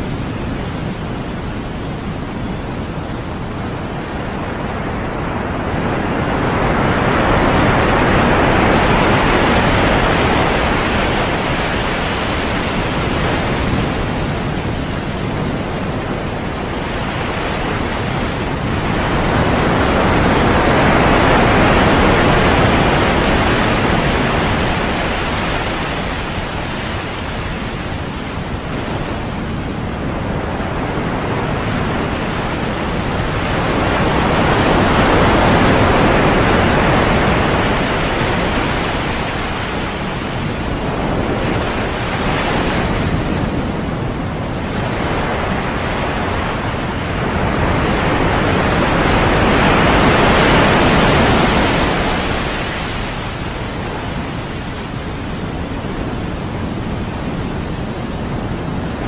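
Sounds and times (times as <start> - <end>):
waves breaking and washing in: 0.0 - 59.0.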